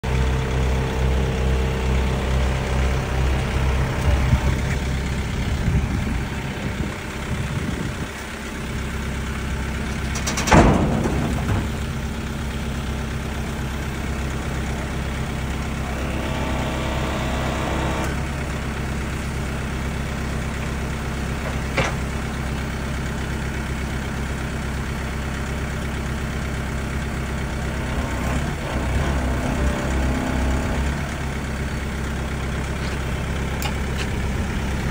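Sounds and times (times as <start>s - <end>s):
diesel engine idling: 0.0s - 34.9s
loud clunk: 9.9s - 11.9s.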